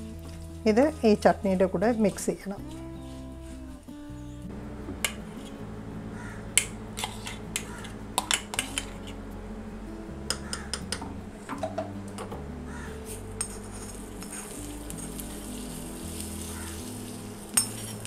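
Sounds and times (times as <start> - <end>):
spatula scraping a pan: 5.2 - 5.6, 7.0 - 9.2, 13.1 - 18.0
spoon clinking against metal bowl: 6.6 - 9.0, 17.6 - 18.0.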